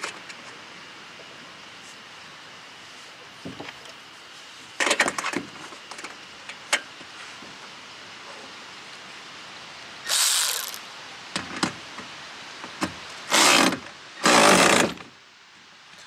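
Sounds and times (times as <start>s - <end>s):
power ratchet running: 10.1s - 10.8s, 13.3s - 15.0s
ratchet clicks: 10.1s - 10.8s.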